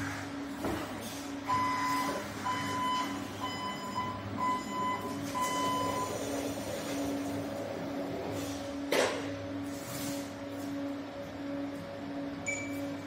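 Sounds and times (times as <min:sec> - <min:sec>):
warning alarm beeping: 0:01.4 - 0:06.2.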